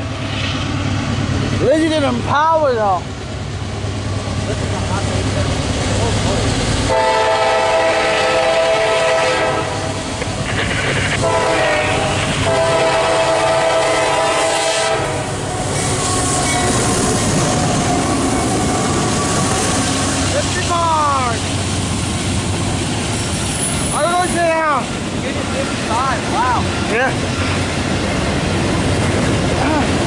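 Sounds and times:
locomotive engine and wheels rumbling: 0.0 - 30.0
train air horn blasts: 6.9 - 10.0, 11.0 - 17.0.

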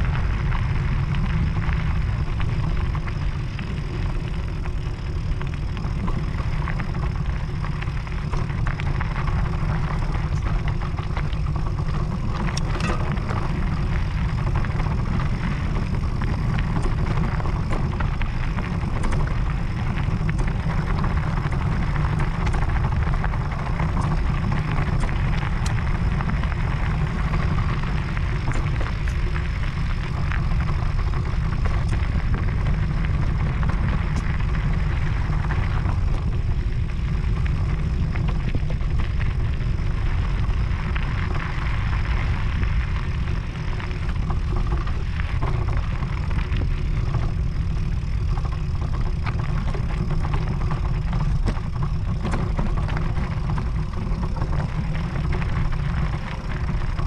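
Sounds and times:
wind on microphone: 0.0 - 57.0
clicks and rattles: 12.4 - 13.6.

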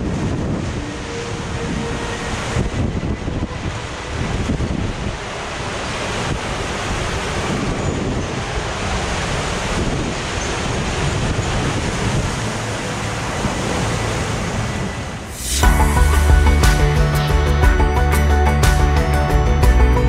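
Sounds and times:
raft sliding down water slide: 0.0 - 16.7
wind buffeting microphone: 0.0 - 17.8
rushing water: 0.0 - 20.0
music: 15.4 - 20.0.

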